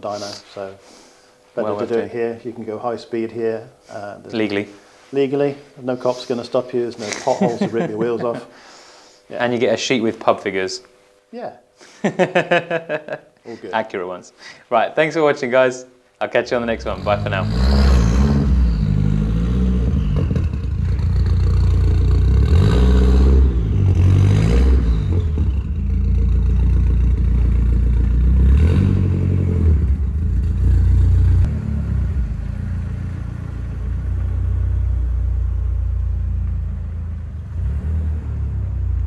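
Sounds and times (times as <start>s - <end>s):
car engine revving: 16.6s - 39.0s.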